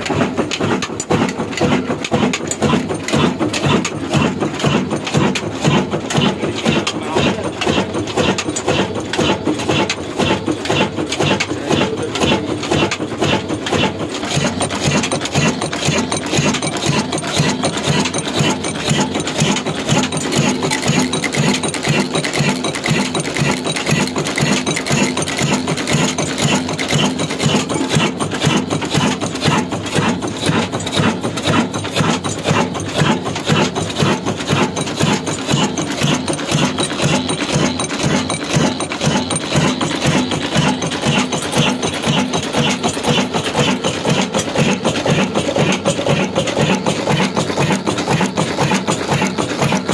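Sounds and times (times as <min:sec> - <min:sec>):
diesel engine clattering: 0:00.0 - 0:49.9.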